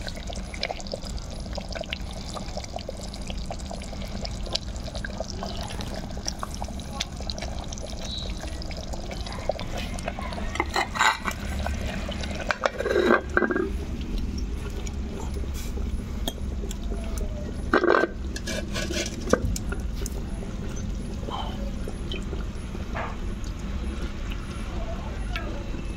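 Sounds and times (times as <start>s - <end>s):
curry bubbling: 0.0s - 25.9s
metal lid clinking on pot: 10.6s - 11.4s.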